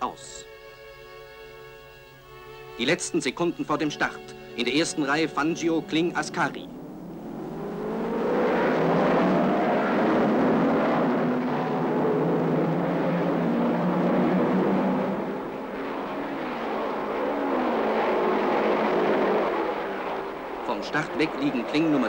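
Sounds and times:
racing car engines accelerating: 5.0s - 22.0s.

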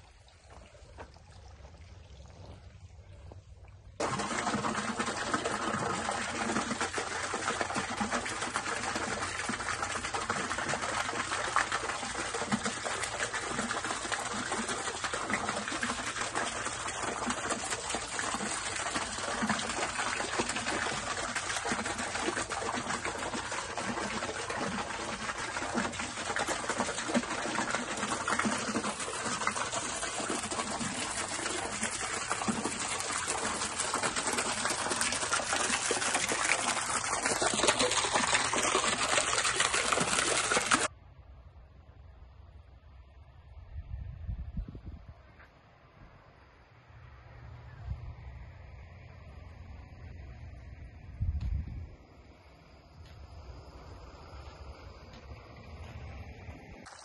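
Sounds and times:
fountain water splashing into pool: 0.0s - 40.9s.

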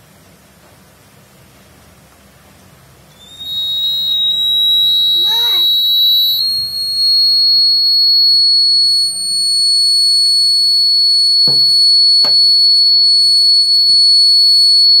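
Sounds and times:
high-pitched buzzer tone: 3.2s - 15.0s.

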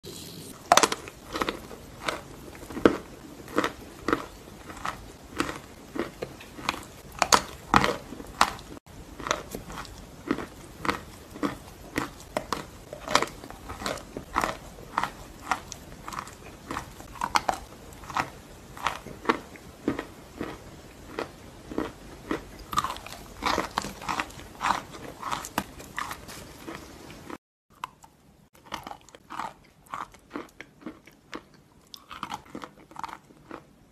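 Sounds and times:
chewing: 0.7s - 33.7s.

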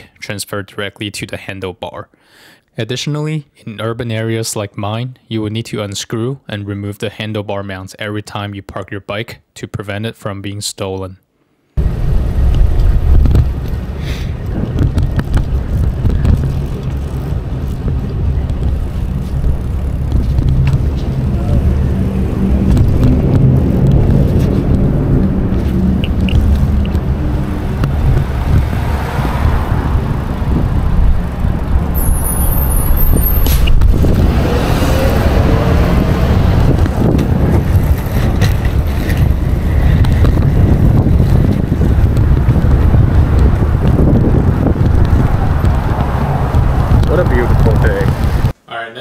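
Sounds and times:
city traffic: 11.8s - 48.6s
wind rumbling on microphone: 11.8s - 48.6s.

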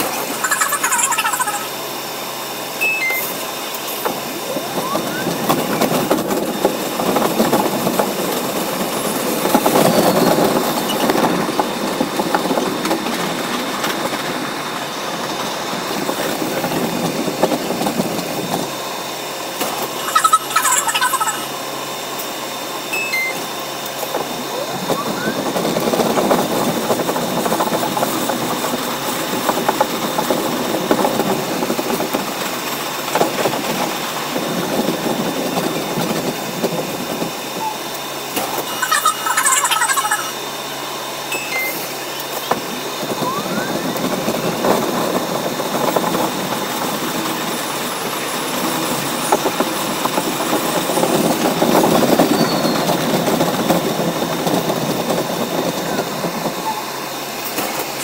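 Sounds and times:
subway car wheel and motor rumble: 0.0s - 58.0s
high-pitched burst: 2.8s - 3.5s.

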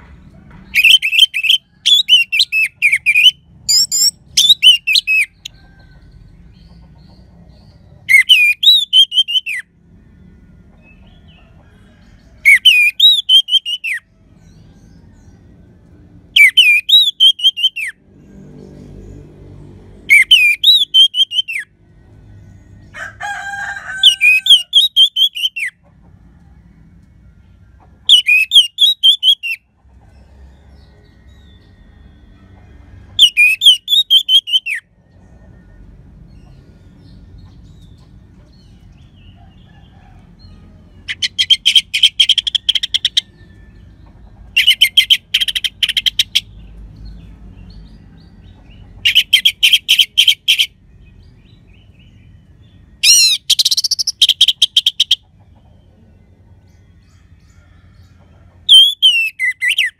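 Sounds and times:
thrush singing warbling whistles: 0.7s - 5.5s, 8.1s - 9.7s, 12.4s - 14.0s, 16.3s - 18.0s, 20.1s - 21.8s, 24.0s - 25.8s, 28.1s - 29.7s, 33.2s - 34.9s, 41.1s - 43.4s, 44.6s - 46.5s, 49.0s - 50.8s, 53.0s - 55.3s, 58.7s - 59.9s
lower-pitched bird call: 0.7s - 5.9s, 8.0s - 9.7s, 10.8s - 14.0s, 16.3s - 18.0s, 20.1s - 21.7s, 24.0s - 25.8s, 28.0s - 29.8s, 33.1s - 34.9s, 40.4s - 46.5s, 49.0s - 50.8s, 53.0s - 55.3s, 58.6s - 59.9s.

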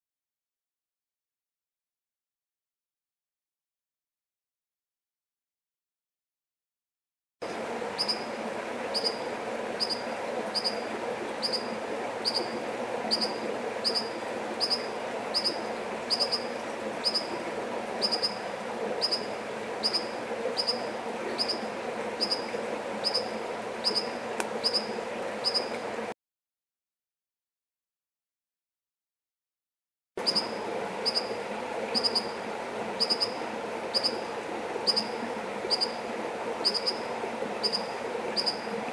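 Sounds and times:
running water: 7.4s - 26.1s, 30.2s - 38.9s.

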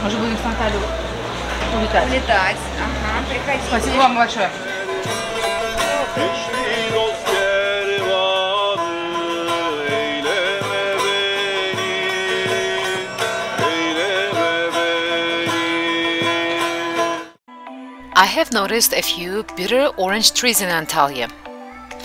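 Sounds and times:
plucked lute: 3.7s - 17.3s
man singing: 4.5s - 17.3s.

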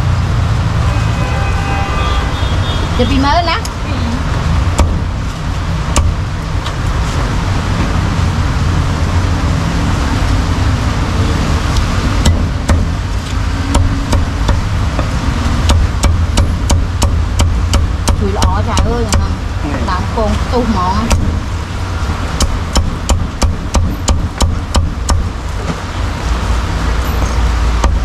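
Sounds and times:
low traffic rumble: 0.0s - 28.0s
cleaver chopping meat on block: 4.8s - 5.0s, 15.7s - 18.2s, 22.4s - 25.3s.

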